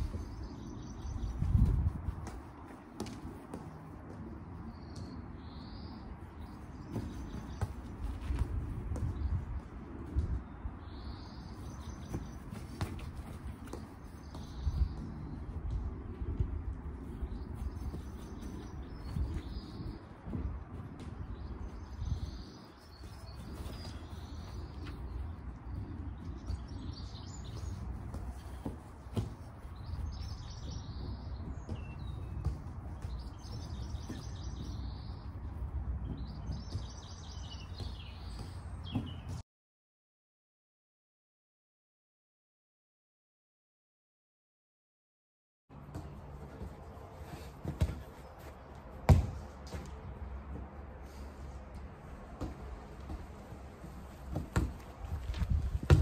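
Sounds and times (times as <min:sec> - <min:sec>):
footballs tapped on grass: 0:00.0 - 0:05.3, 0:06.4 - 0:10.5, 0:11.5 - 0:39.4, 0:45.7 - 0:56.0
birds chirping: 0:00.0 - 0:09.7, 0:10.3 - 0:15.9, 0:17.0 - 0:39.4.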